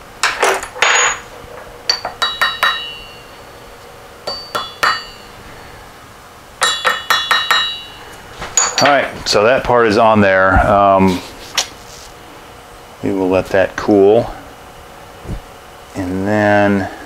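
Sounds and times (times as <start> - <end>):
mallet tapping on metal: 1.9 - 3.2, 4.2 - 5.2, 6.6 - 7.9.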